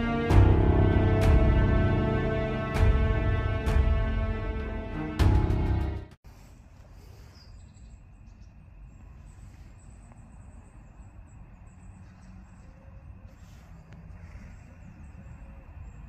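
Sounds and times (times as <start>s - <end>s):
dramatic intro music: 0.0s - 6.2s
faint high-pitched chirping: 7.0s - 16.0s.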